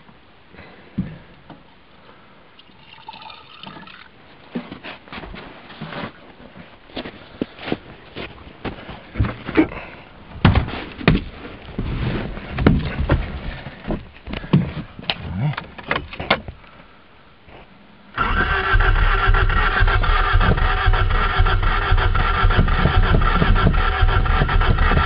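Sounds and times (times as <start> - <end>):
knocks and thumps: 10.4 - 12.0, 12.6 - 14.8, 19.4 - 25.0
car engine cranking: 18.2 - 25.0.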